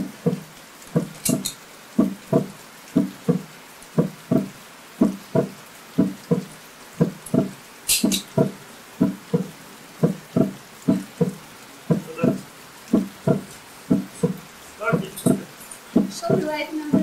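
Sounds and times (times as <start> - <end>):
deep drum heartbeat rhythm: 0.0 - 17.0
sharp double click: 1.2 - 1.6, 7.3 - 8.4.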